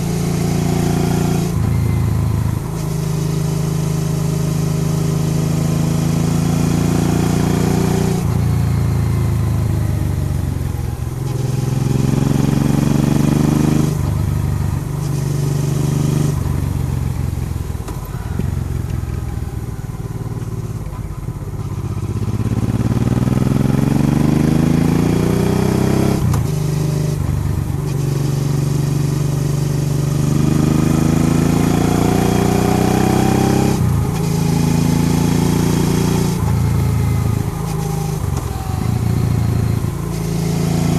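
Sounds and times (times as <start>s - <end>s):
motorcycle engine accelerating: 0.0s - 40.9s.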